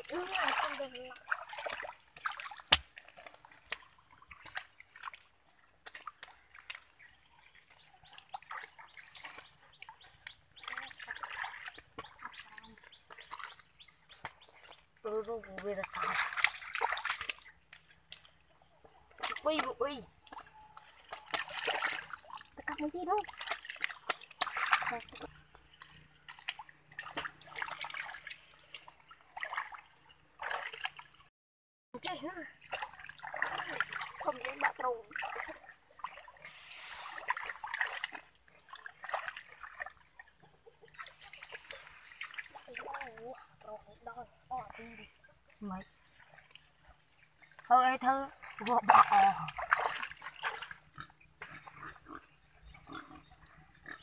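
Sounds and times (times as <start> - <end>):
hands slapping wet mud: 0.0 - 14.8, 15.4 - 18.4, 19.1 - 25.4, 26.3 - 29.8
mud squelching: 0.0 - 31.3, 32.0 - 54.0
small water splashes: 0.0 - 31.3, 32.0 - 51.9.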